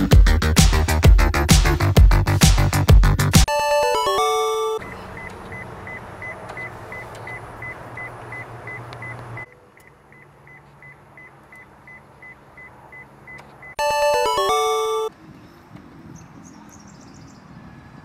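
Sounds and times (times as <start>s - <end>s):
car warning chime beeping: 3.5s - 15.1s.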